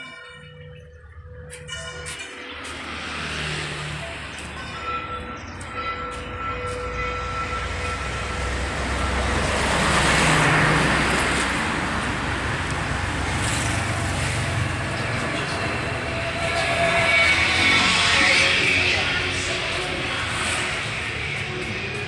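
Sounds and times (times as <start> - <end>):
road traffic rumble: 0.2 - 22.0
vehicle passing: 2.5 - 5.1, 7.4 - 22.0.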